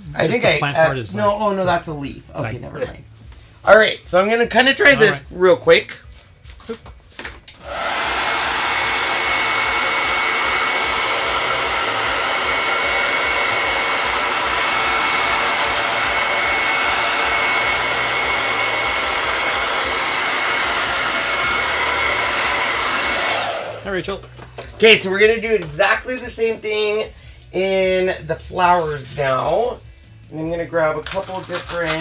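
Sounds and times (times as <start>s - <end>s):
blow dryer running: 7.6s - 24.1s.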